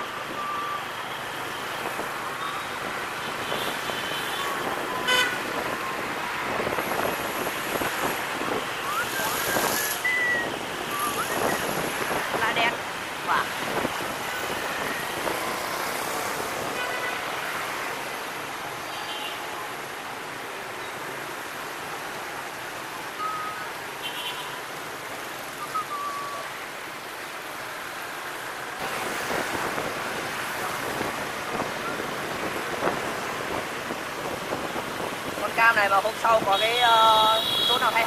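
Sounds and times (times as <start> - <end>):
street traffic noise: 0.0 - 38.0
wind on microphone: 3.2 - 15.8, 28.8 - 36.5.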